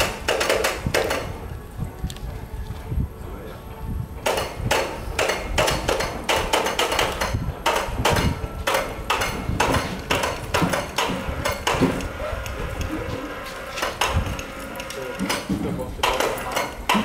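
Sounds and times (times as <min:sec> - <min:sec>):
metal parts knocking together: 0:04.3 - 0:12.1, 0:13.8 - 0:17.0.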